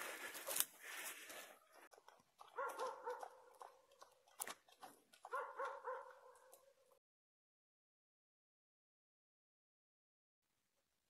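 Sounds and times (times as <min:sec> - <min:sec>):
rustling in dry leaves: 0:00.0 - 0:01.6.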